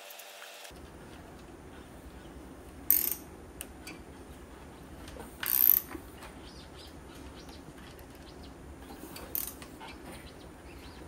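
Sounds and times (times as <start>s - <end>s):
ratchet wrench clicking: 2.9s - 3.3s, 5.4s - 5.9s.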